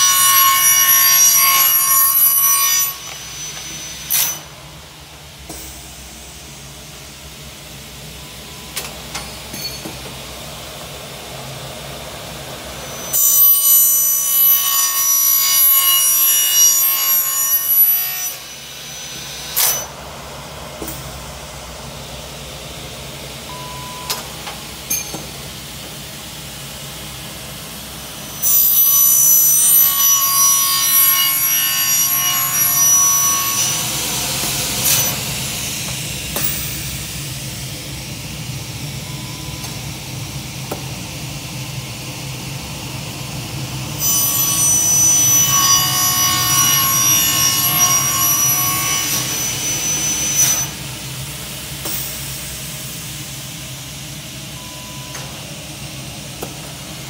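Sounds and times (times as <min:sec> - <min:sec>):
saw blade screeching through metal: 0:00.0 - 0:04.6, 0:09.2 - 0:10.0, 0:12.8 - 0:20.0, 0:28.2 - 0:37.0, 0:44.0 - 0:50.9
saw machine running: 0:26.4 - 0:39.7, 0:42.2 - 0:55.1.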